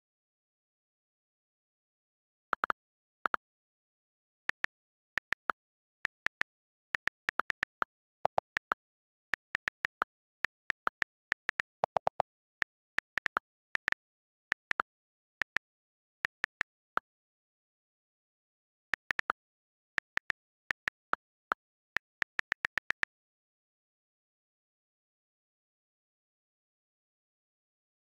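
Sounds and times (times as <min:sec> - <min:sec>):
phone keyboard clicks: 0:04.5 - 0:14.8, 0:15.4 - 0:16.9, 0:19.0 - 0:23.1.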